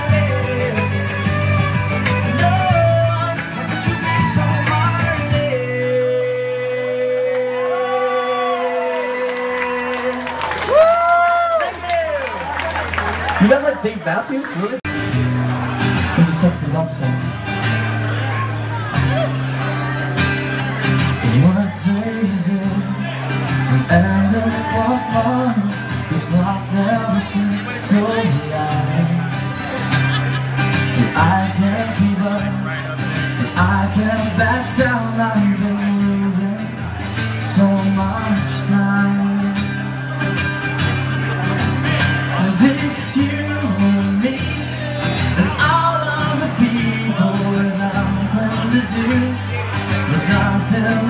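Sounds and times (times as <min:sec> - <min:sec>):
person singing: 0:00.0 - 0:10.9
guitar: 0:00.0 - 0:51.0.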